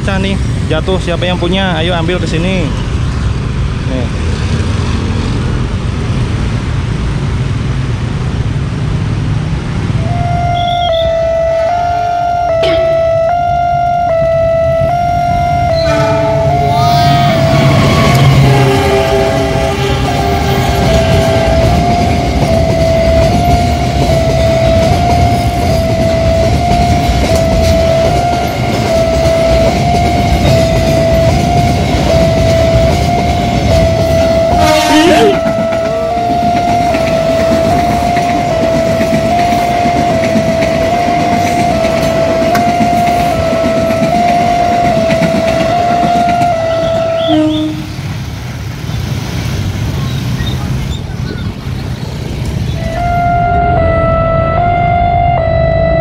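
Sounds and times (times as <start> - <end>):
freight train rumbling past: 0.0 - 56.0
level crossing two-note chime: 10.2 - 17.7.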